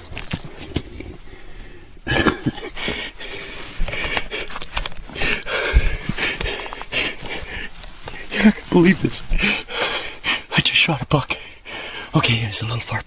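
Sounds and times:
camera handling rustling: 3.8s - 5.2s.

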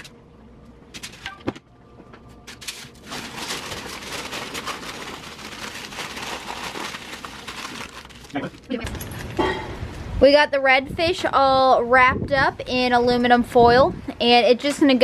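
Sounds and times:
aluminum foil crinkling: 2.4s - 8.9s.

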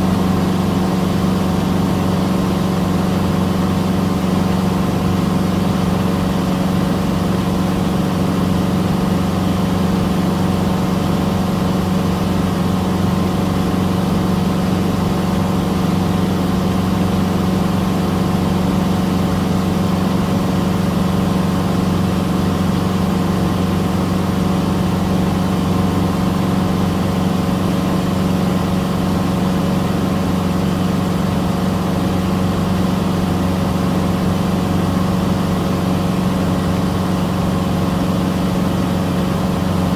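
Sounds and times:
airplane engine drone in cabin: 0.0s - 39.9s.

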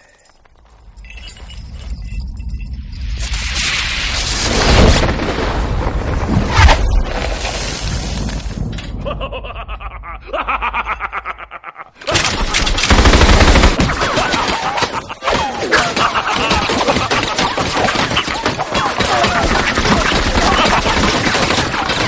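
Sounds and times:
rumble: 0.2s - 9.8s
rapid sharp cracks: 12.0s - 22.0s.

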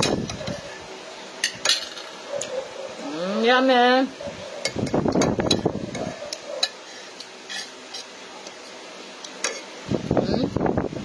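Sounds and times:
metal spoon scraping a plate: 7.4s - 8.1s.

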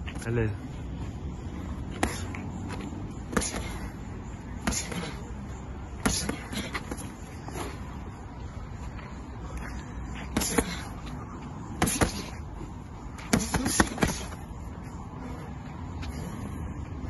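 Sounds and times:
boxing gloves smacking: 11.8s - 12.4s, 13.2s - 14.4s.

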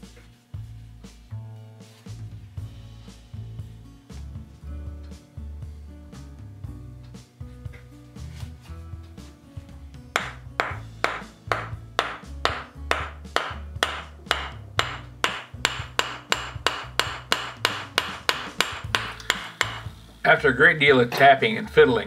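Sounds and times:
wooden mallet knocking metal: 10.1s - 19.9s.

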